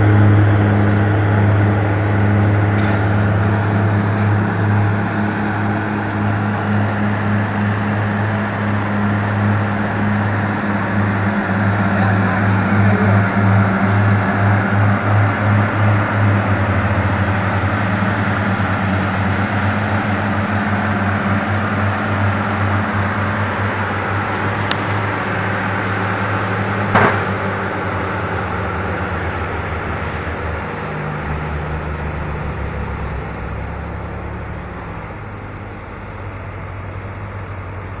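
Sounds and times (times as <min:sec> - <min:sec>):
heavy diesel engines droning: 0:00.0 - 0:38.0
sharp knock: 0:26.9 - 0:27.4.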